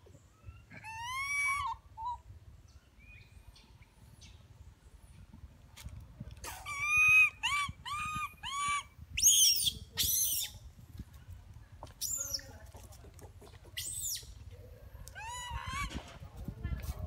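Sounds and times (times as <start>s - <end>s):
baby monkey crying: 0.7s - 2.2s, 6.5s - 10.5s, 15.2s - 15.9s.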